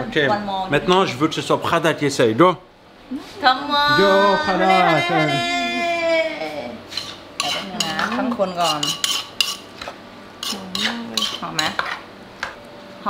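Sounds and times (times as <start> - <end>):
spoon clinking against a bowl: 6.9 - 9.7, 10.4 - 12.0.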